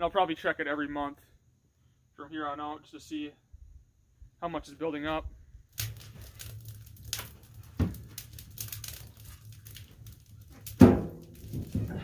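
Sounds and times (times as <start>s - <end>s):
fire crackling: 5.6s - 12.0s
wood knocking against wood and iron: 10.6s - 12.0s.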